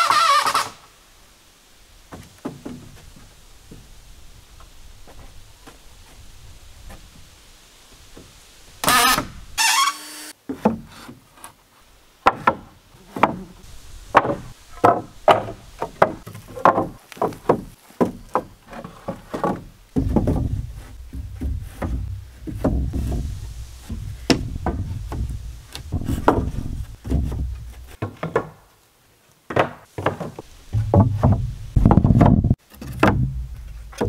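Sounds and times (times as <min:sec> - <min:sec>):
wooden boards knocking: 0:02.1 - 0:03.8, 0:12.2 - 0:13.4, 0:14.1 - 0:28.6, 0:29.5 - 0:34.0
steady low rumble: 0:22.0 - 0:27.9.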